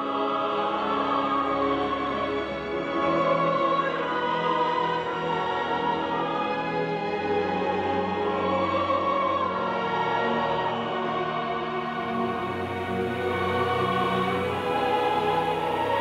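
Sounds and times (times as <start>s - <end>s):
operatic singing voices: 0.0s - 16.0s
symphony orchestra: 0.0s - 16.0s.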